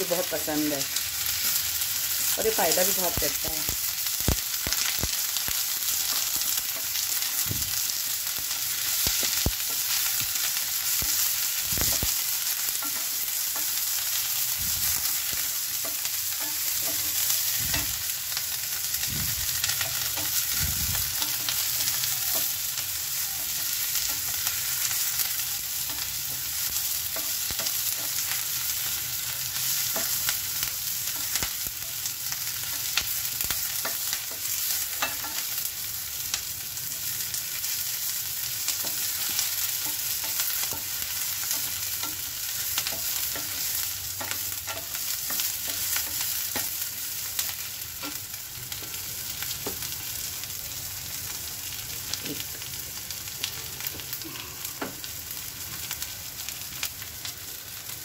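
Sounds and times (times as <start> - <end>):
onions sizzling in oil: 0.0 - 58.0.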